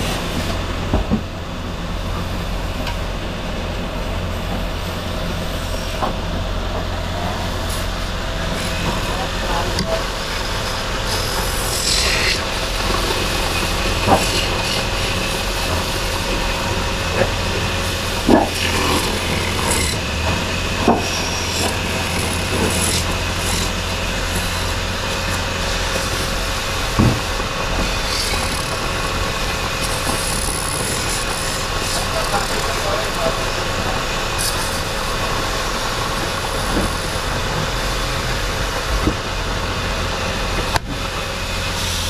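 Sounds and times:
wood lathe running: 0:03.6 - 0:42.0
chisel scraping spinning wood: 0:08.5 - 0:38.2.

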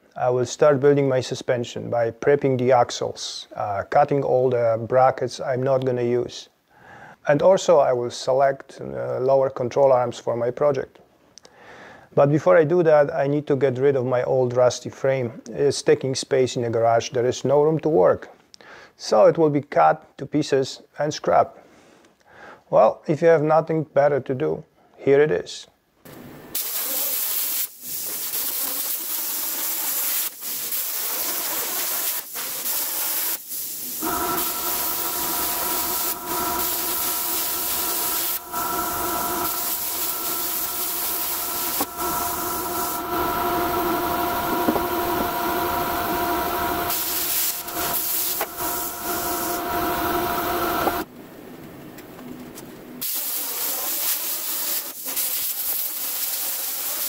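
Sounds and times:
plasma cutter hissing: 0:26.5 - 0:51.1, 0:53.0 - 0:57.0
steady multi-tone whine: 0:34.0 - 0:51.1.

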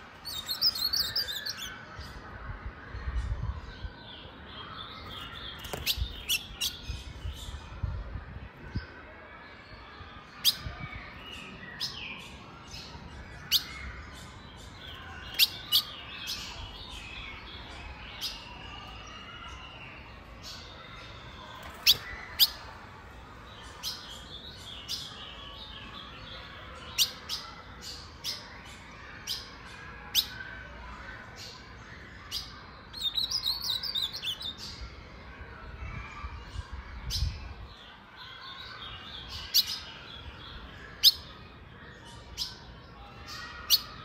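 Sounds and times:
bird warbled singing: 0:00.0 - 0:02.2, 0:04.6 - 0:07.7, 0:10.3 - 0:30.4, 0:31.6 - 0:34.8.

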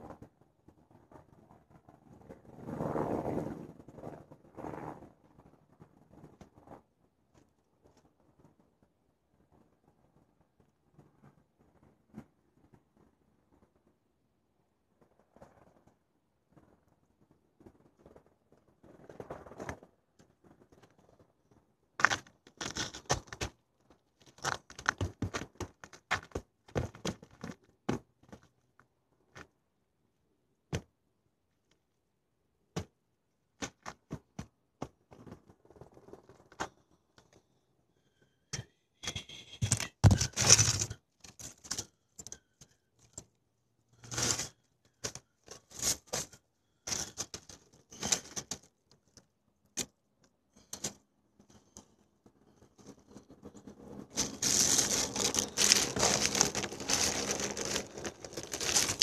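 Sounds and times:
handling clicks and scrapes: 0:22.0 - 0:28.6, 0:38.5 - 0:43.4, 0:44.0 - 0:59.0.

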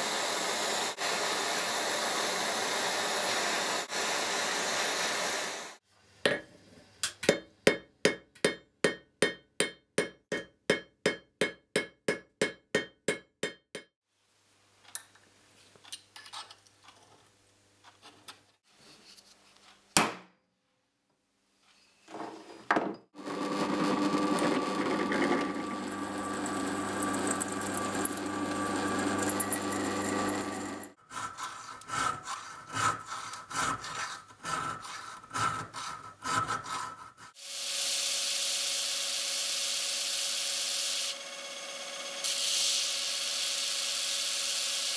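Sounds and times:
steady rasping: 0:29.0 - 0:37.4
file strokes on metal: 0:30.9 - 0:38.5.

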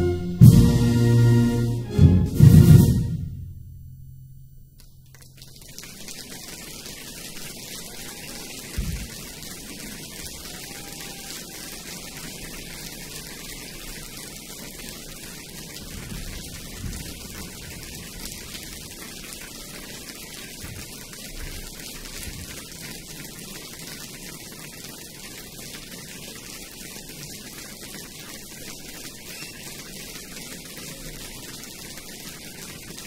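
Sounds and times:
audience applauding: 0:05.1 - 0:26.4, 0:27.8 - 0:33.0.

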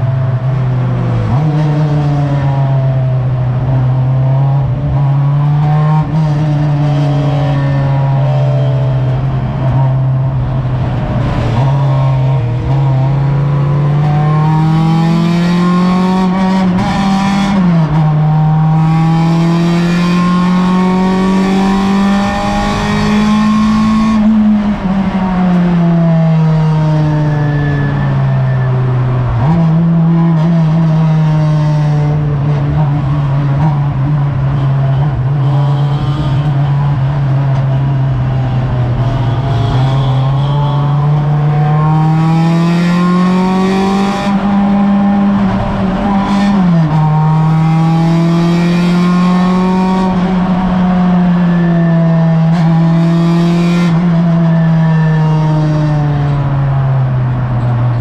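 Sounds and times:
race car engine revving: 0:00.0 - 0:58.0.

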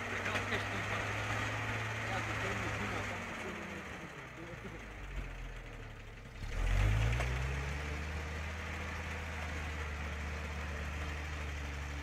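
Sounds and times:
truck engine revving under load: 0:00.0 - 0:05.7, 0:06.3 - 0:12.0.

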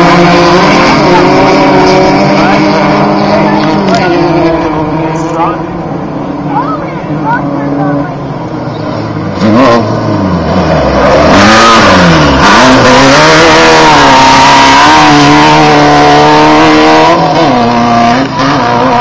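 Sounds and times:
buggy engine revving hard: 0:00.0 - 0:05.8, 0:06.4 - 0:19.0.

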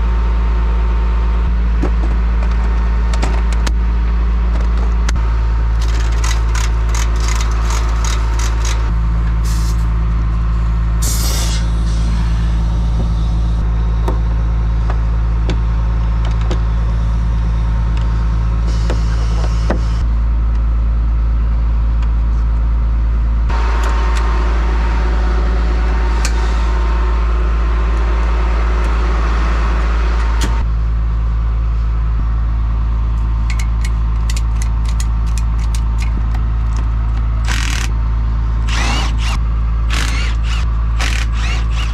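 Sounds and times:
diesel truck engine idling: 0:00.0 - 0:41.9
hiss of noise: 0:11.0 - 0:12.1.

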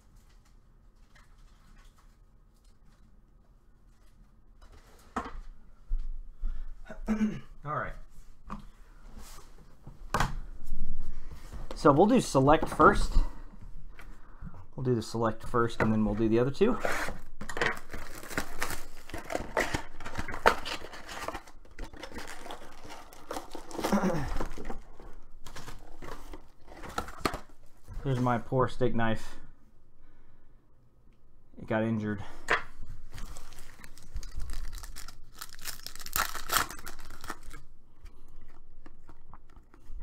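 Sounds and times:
shrink wrap and cardboard tearing: 0:16.8 - 0:26.3, 0:33.2 - 0:37.7.

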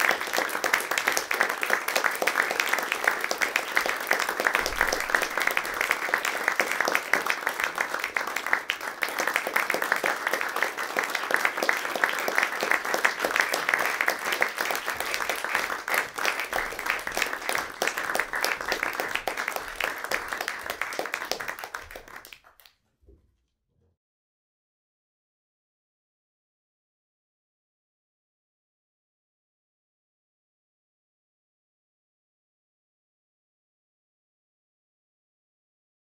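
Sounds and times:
audience applauding: 0:00.0 - 0:22.7.

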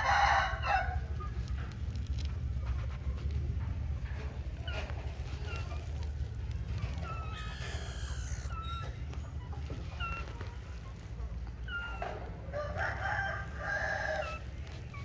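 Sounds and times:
animal high chirps: 0:06.9 - 0:10.5, 0:11.6 - 0:12.1.

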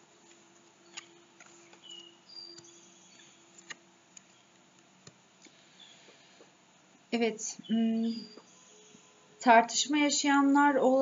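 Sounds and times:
low steady hum: 0:00.0 - 0:11.0
faint high chirps: 0:07.5 - 0:09.8.

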